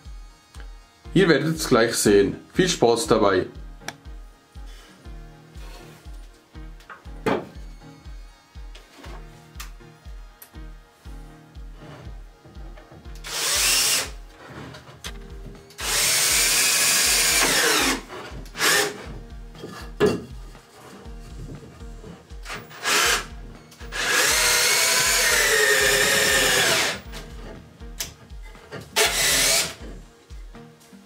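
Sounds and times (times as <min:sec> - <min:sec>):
background music with low beat: 0:00.0 - 0:31.0
cordless drill drilling into wood: 0:13.2 - 0:14.2, 0:15.8 - 0:19.0, 0:22.4 - 0:27.1, 0:29.0 - 0:29.9.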